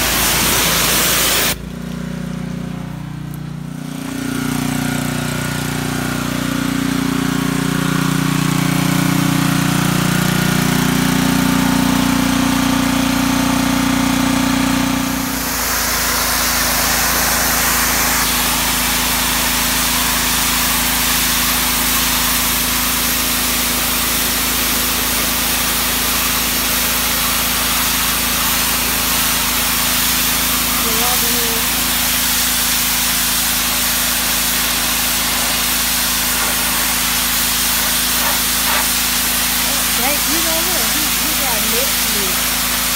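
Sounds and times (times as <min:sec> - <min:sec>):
high-pressure water jet hissing: 0:00.0 - 0:01.6, 0:14.8 - 0:42.9
pressure washer engine running: 0:00.0 - 0:42.9.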